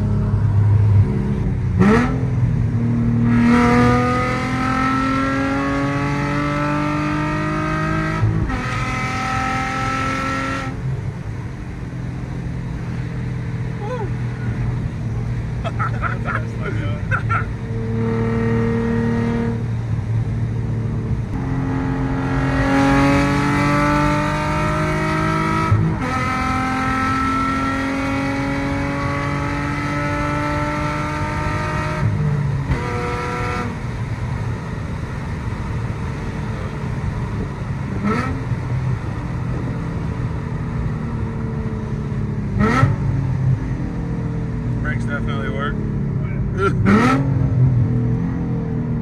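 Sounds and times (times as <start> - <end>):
car engine accelerating: 0.0 - 49.0
road noise: 0.0 - 49.0.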